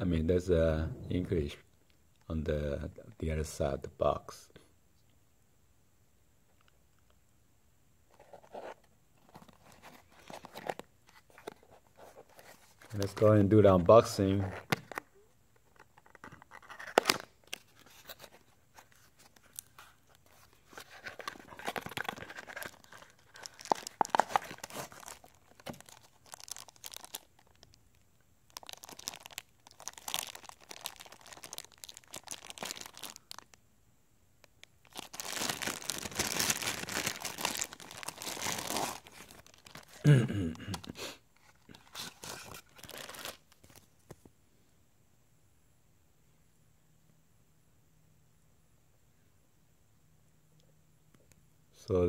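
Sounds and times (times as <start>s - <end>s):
plastic bag crinkling: 19.3s - 27.8s, 28.5s - 33.6s, 34.6s - 40.1s, 41.6s - 43.9s.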